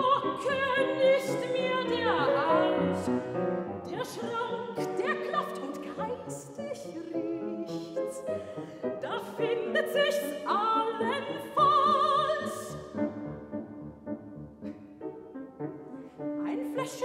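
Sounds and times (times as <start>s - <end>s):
soprano singing: 0.0s - 13.7s, 14.6s - 17.0s
grand piano accompaniment: 0.0s - 17.0s.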